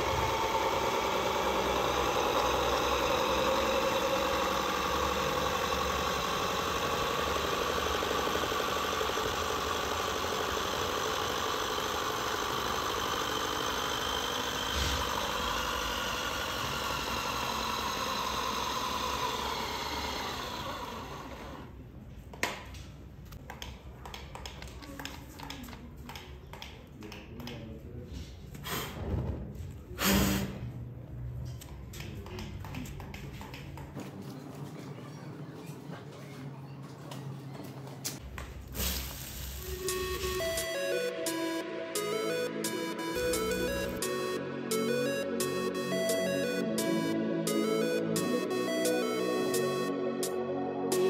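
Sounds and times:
toy car electric motor whining: 0:00.0 - 0:21.8, 0:39.5 - 0:49.8.

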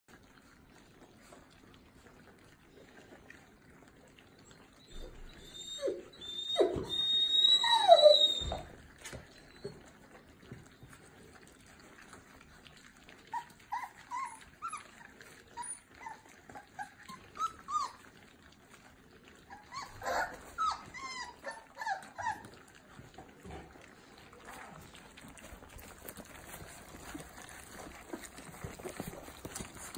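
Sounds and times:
puppies whimpering and squeaking: 0:00.1 - 0:29.9.

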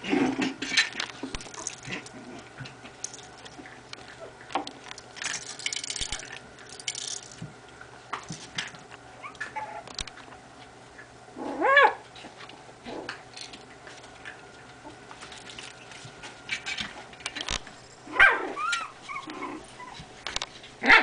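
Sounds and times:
puppies scuffling among toys: 0:00.0 - 0:08.9, 0:12.1 - 0:17.6
puppy yelp: 0:09.2 - 0:09.8, 0:11.5 - 0:12.0, 0:18.1 - 0:20.0.

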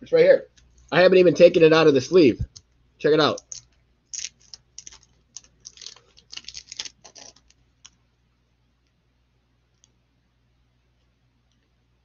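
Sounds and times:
plastic crinkling and clicks: 0:03.4 - 0:08.0.

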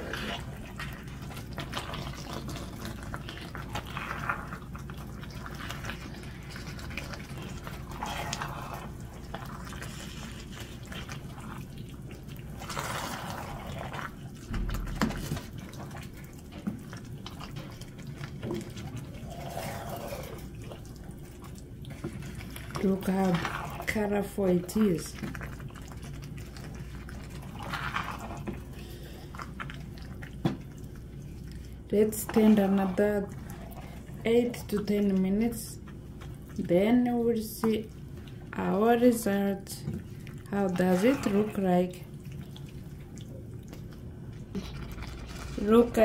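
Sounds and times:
wooden spoon stirring thick sauce: 0:00.0 - 0:46.0.

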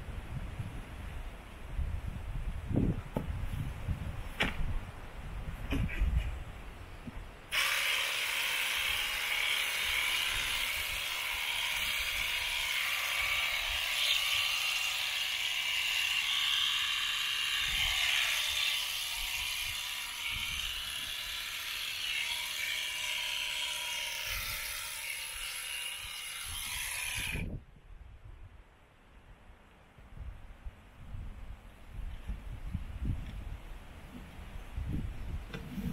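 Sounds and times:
electric shears buzzing: 0:07.5 - 0:27.4.

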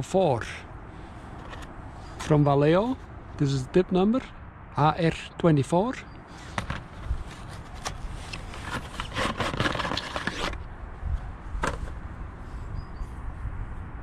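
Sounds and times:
cardboard packaging scraping: 0:06.4 - 0:10.6.

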